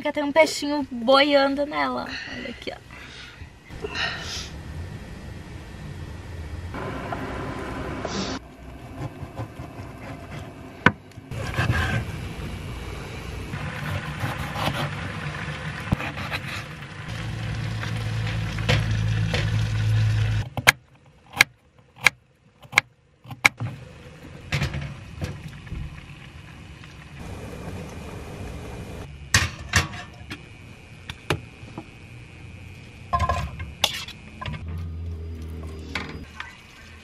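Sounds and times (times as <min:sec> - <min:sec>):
gas stove low rumble: 0:03.7 - 0:09.0, 0:09.8 - 0:20.4, 0:23.6 - 0:36.3.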